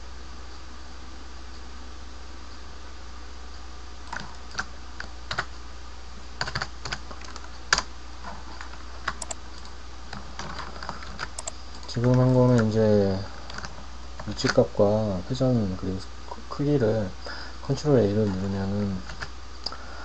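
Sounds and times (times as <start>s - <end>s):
steady low hum: 0.0s - 20.0s
computer keyboard typing: 4.1s - 5.5s, 6.4s - 12.7s, 13.4s - 14.7s, 18.2s - 19.3s.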